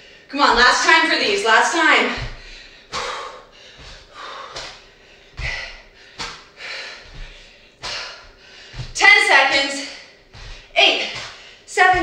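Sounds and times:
soft low thuds: 2.1s - 3.2s, 3.8s - 12.0s
woman exhaling forcefully: 2.3s - 4.8s.

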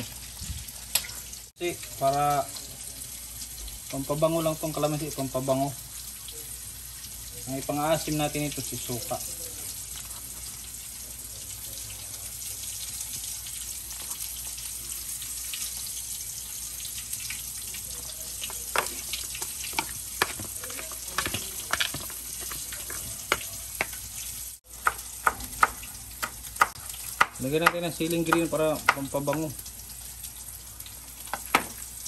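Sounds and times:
fork and spoon scraping plastic tub: 18.6s - 24.0s.

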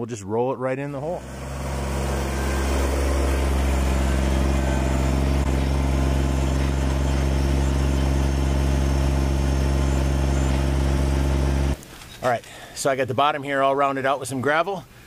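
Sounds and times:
tractor diesel engine running: 1.0s - 11.8s.

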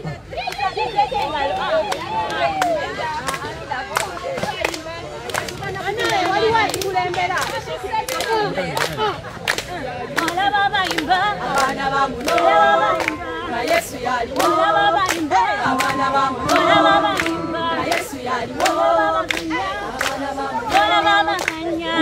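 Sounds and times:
congregation singing: 10.1s - 22.0s.

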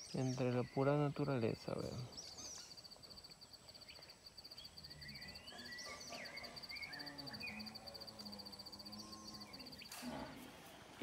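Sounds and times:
birds calling: 0.0s - 10.6s
insect pulsing chirp: 2.0s - 10.0s.

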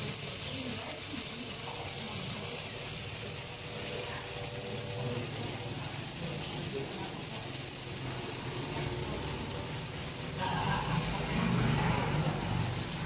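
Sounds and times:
street noise: 0.0s - 13.0s
vehicle engine running: 2.7s - 13.0s.

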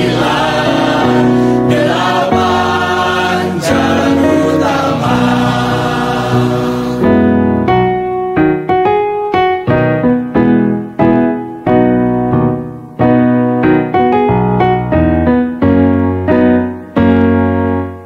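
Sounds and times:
choir holding a chord: 0.0s - 7.7s
piano chords: 0.0s - 18.0s.

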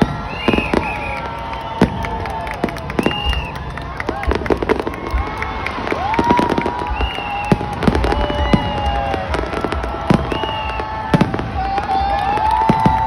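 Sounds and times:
firework crackle: 0.0s - 13.0s.

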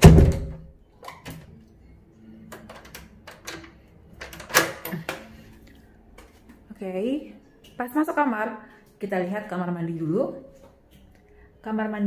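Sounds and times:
door shutting with a thud: 0.0s - 0.6s
metallic latch clicks and rattles: 2.5s - 5.3s.

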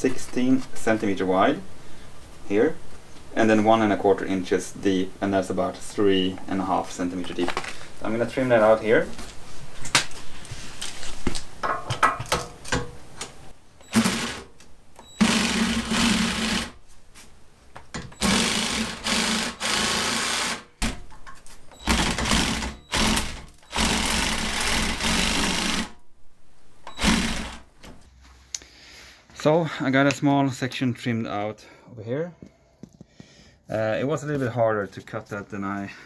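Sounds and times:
power tool cutting plastic: 13.8s - 16.8s, 18.2s - 21.0s, 21.8s - 26.0s, 26.9s - 27.7s.

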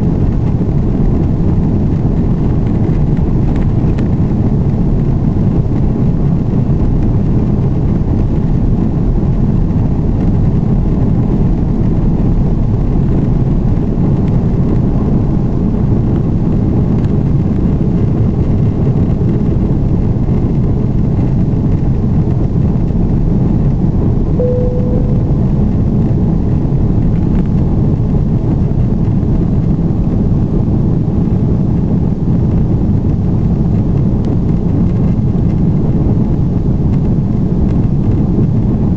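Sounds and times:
brief cabin tone: 24.4s - 25.9s.

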